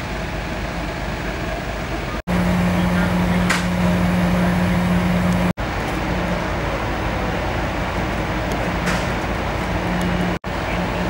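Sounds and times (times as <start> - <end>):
fire engines running: 0.0 - 11.0.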